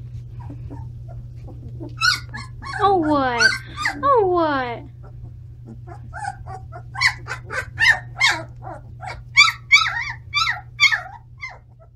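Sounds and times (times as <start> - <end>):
puppies squeaky crying: 0.4 - 4.2, 5.0 - 11.9.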